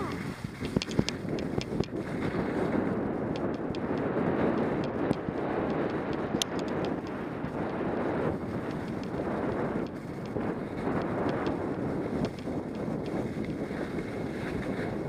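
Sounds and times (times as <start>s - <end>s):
faint clicks: 0.0s - 2.0s, 3.3s - 7.8s, 8.5s - 13.6s
skis sliding over snow: 0.0s - 15.0s
wind rushing over microphone: 0.0s - 15.0s.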